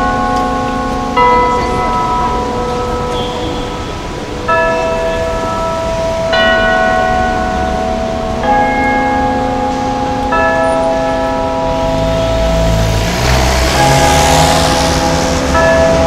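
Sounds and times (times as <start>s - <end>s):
clock tower bells ringing: 0.0s - 16.0s
road traffic rumbling: 0.0s - 16.0s.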